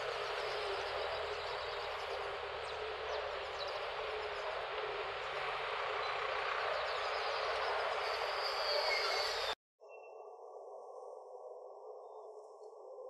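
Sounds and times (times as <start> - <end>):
steady outdoor hiss: 0.0 - 9.6
faint bird chirps: 5.5 - 13.0.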